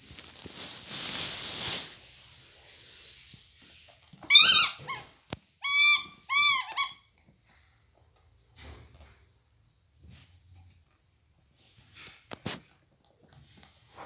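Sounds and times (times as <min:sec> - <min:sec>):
soft rustling: 0:00.0 - 0:05.0
rubber toy squeaking: 0:04.2 - 0:07.2.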